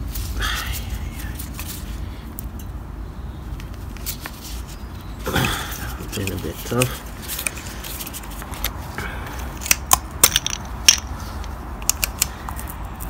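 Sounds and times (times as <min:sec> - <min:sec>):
plastic bolt caps clicking off: 0:08.5 - 0:11.1, 0:11.8 - 0:12.6.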